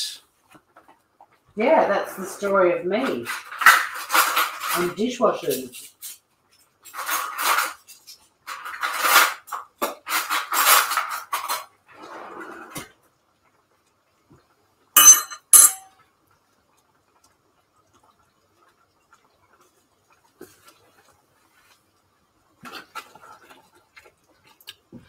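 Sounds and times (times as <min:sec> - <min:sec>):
dishes and pots scraping and clattering: 0:03.0 - 0:13.0, 0:15.0 - 0:16.0
sharp metallic clanks: 0:15.0 - 0:15.9.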